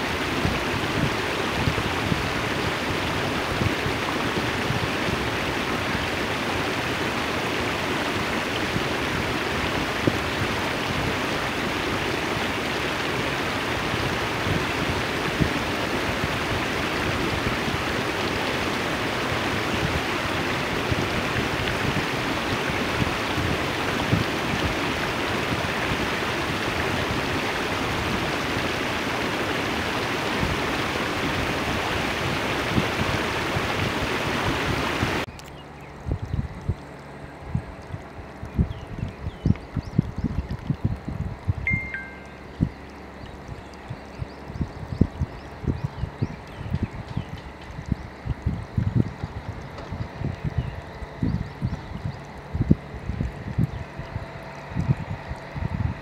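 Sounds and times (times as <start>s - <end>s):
seawater washing over rocks: 0.0s - 35.3s
small water splashes: 0.0s - 56.0s.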